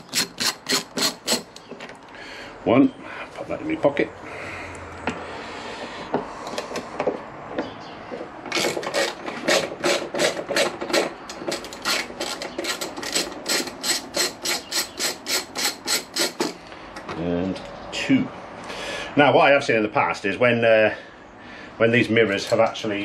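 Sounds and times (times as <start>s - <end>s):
hand ratchet clicking: 0.0s - 1.6s, 8.5s - 16.6s.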